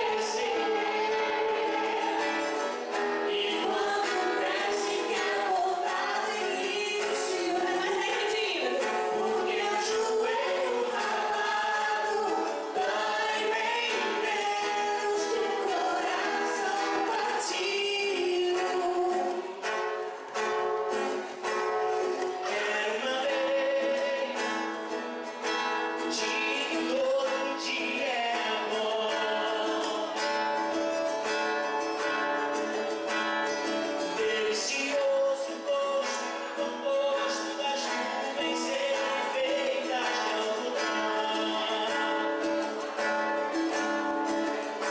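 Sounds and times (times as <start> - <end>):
woman singing: 0.0 - 19.4
man singing: 0.0 - 19.6, 21.9 - 24.8, 25.9 - 30.8, 33.7 - 44.9
acoustic guitar: 0.0 - 44.9.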